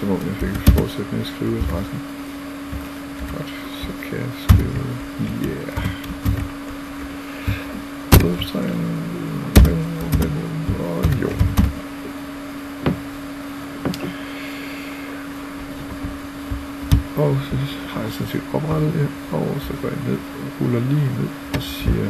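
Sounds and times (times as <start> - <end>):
low electrical hum: 0.0 - 22.0.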